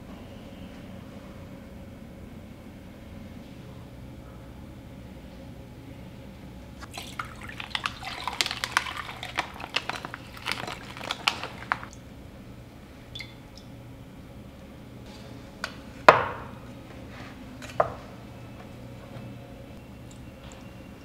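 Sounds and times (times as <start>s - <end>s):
water splashing and dripping: 6.9s - 12.0s, 13.1s - 13.7s.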